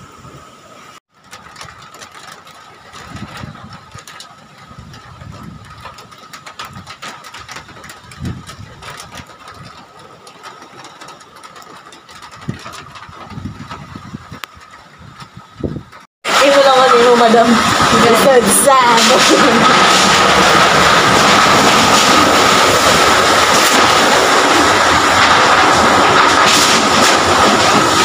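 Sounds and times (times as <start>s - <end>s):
wind buffeting microphone: 1.4s - 28.0s
crackling: 15.9s - 28.0s.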